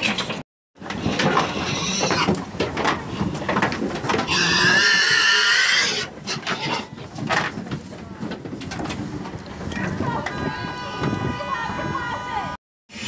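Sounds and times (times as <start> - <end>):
pigs grunting: 0.9 - 7.0
pig squealing: 1.3 - 2.3, 4.3 - 6.9.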